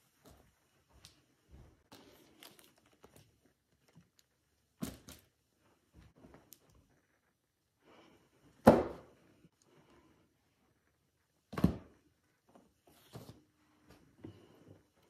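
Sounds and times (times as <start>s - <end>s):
soft shuffling: 0.0s - 3.6s
books thudding down: 8.6s - 9.1s.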